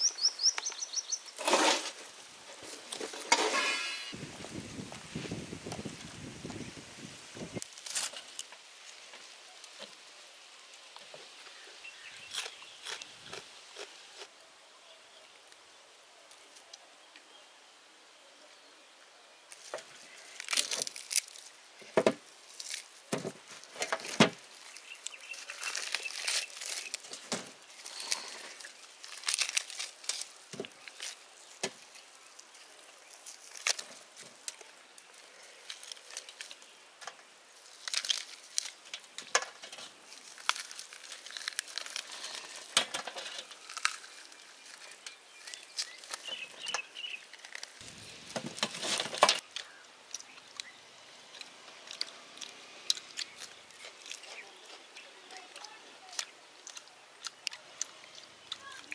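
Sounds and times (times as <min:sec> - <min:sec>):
crispy meat tearing: 0:12.2 - 0:14.3, 0:20.1 - 0:21.6, 0:24.0 - 0:36.7, 0:37.6 - 0:39.2, 0:39.8 - 0:48.1, 0:51.4 - 0:58.9.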